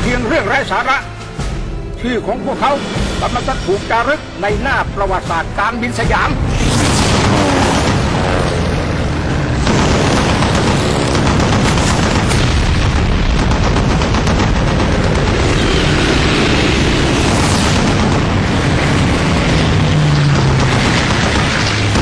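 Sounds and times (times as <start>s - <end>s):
loud rumble with booms: 4.7s - 22.0s.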